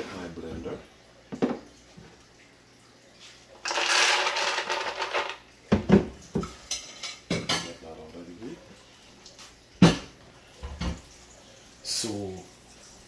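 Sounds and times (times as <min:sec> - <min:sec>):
nuts rattling into plastic jar: 0:03.6 - 0:05.4.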